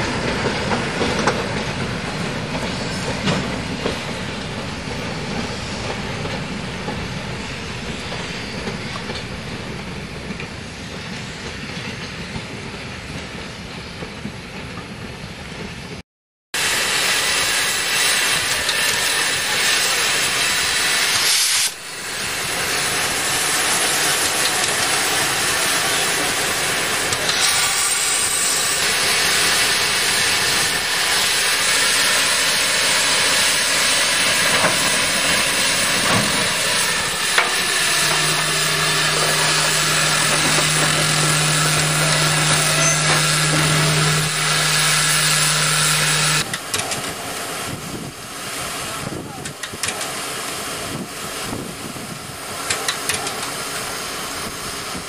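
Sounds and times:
steam hissing from locomotive: 16.6s - 55.0s.

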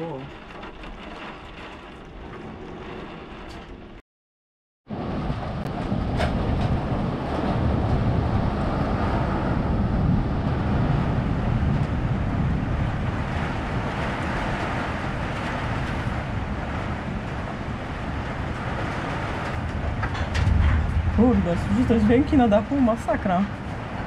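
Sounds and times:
hail and rain beating on windows: 0.0s - 3.7s, 11.7s - 24.0s
deep rumble: 0.0s - 4.0s, 4.9s - 24.0s
wind roaring: 0.0s - 4.0s, 4.8s - 24.0s
hailstones clicking on glass: 0.1s - 3.6s.

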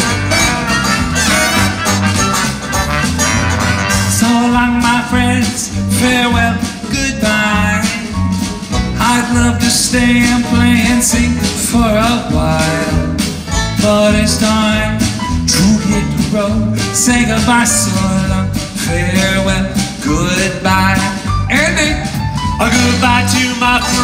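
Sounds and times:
strummed banjo: 0.0s - 11.0s
drum kit beat: 0.0s - 24.0s
swing band playing: 0.0s - 24.0s
upright bass: 0.0s - 24.0s.

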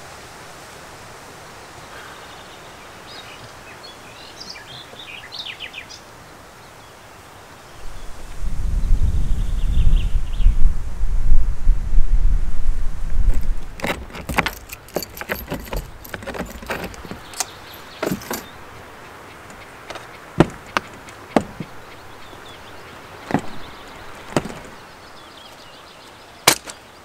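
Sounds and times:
wind rumbling on microphone: 7.7s - 25.2s
roof rack fittings clicking: 13.4s - 22.0s.

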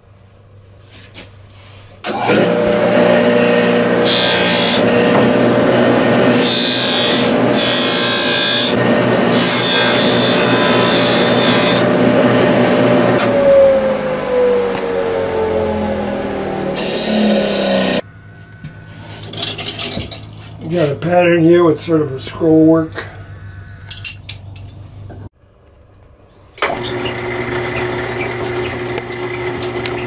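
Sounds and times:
polishing motor running: 2.1s - 19.4s, 26.7s - 30.0s.

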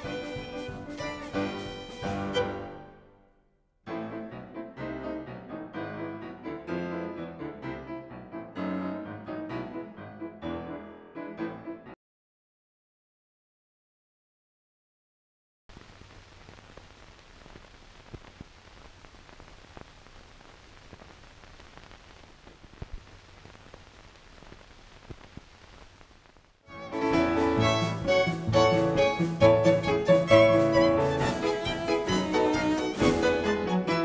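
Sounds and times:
bowed-string music: 0.0s - 3.1s, 26.7s - 34.0s
faint steady hiss: 0.0s - 3.1s, 15.7s - 34.0s.

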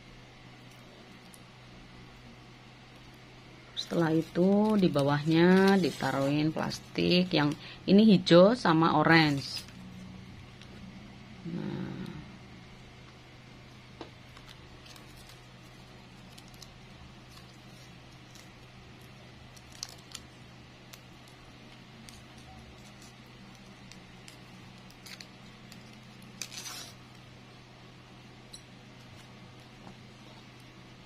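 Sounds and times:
low hum: 0.0s - 31.0s
plastic bag crinkling: 14.2s - 27.0s.

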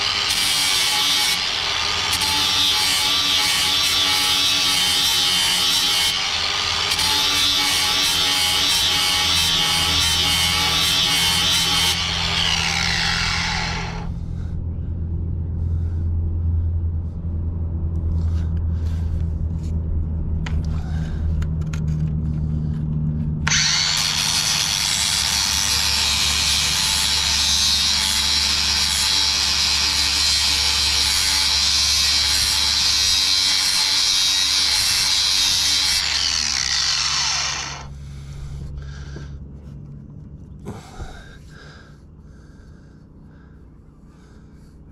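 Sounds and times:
grinder motor winding down: 0.0s - 14.1s, 23.4s - 38.2s
angle grinder grinding steel: 0.0s - 14.2s, 23.4s - 38.3s.

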